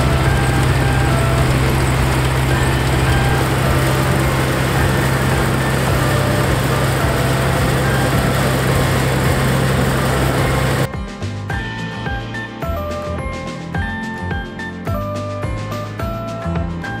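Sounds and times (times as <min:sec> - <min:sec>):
combine harvester running: 0:00.0 - 0:10.9.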